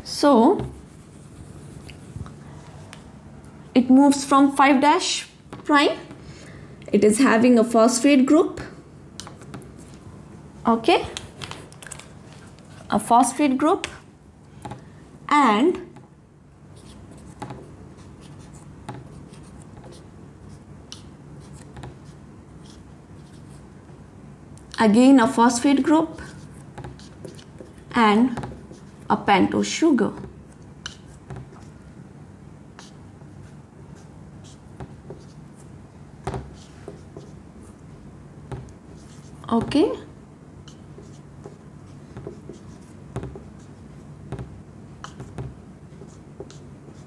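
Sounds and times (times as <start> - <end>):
low room hum: 0.0 - 47.0
marker scratching on whiteboard: 0.4 - 2.3, 16.7 - 23.7, 25.6 - 29.6, 30.2 - 31.8, 32.7 - 37.8, 38.5 - 40.0, 40.6 - 47.0
marker squeaking on whiteboard: 26.1 - 29.1, 32.7 - 35.4, 40.6 - 43.8, 44.4 - 47.0
marker tapping on whiteboard: 26.8 - 28.8, 30.1 - 31.7, 34.8 - 35.3, 36.2 - 37.4, 38.5 - 40.0, 40.9 - 43.7, 44.3 - 46.6.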